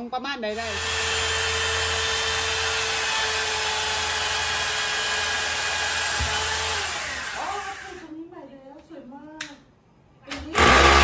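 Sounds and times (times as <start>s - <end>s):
electric drill whining into tile: 0.5s - 8.0s, 10.6s - 11.0s.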